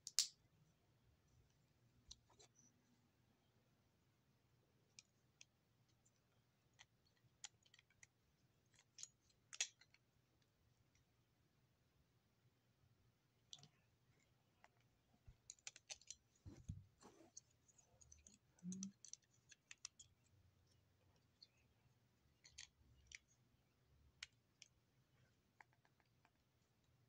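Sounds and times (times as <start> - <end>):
plastic toy bricks clicking: 0.0 - 0.3, 15.5 - 16.2.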